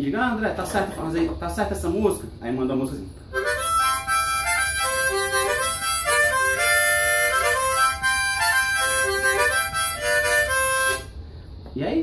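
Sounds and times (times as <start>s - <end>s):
harmonica playing a melody: 3.3s - 11.2s.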